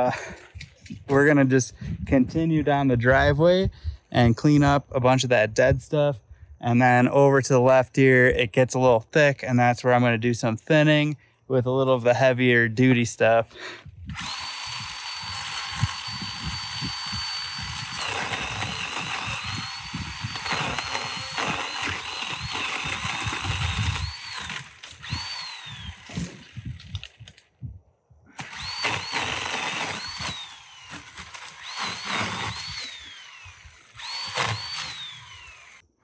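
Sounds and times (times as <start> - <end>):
electric pole saw cutting branches: 14.1 - 27.4, 28.4 - 36.0.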